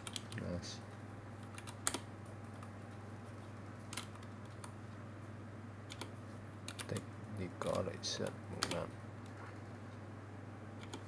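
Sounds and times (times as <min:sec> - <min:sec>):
computer keyboard keystrokes: 0:00.0 - 0:00.5, 0:01.4 - 0:02.7, 0:03.8 - 0:04.7, 0:05.9 - 0:06.1, 0:06.7 - 0:07.0, 0:08.6 - 0:09.7, 0:10.8 - 0:11.0.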